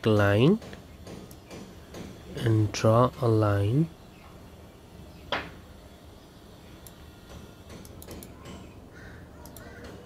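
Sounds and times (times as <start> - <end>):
low background hum: 0.0 - 10.0
computer mouse clicking: 7.7 - 8.6, 9.4 - 10.0.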